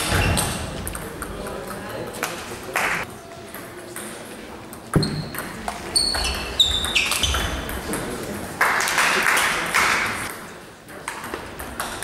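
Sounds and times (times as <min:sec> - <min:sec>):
shoes squeaking on floor: 0:05.0 - 0:07.7.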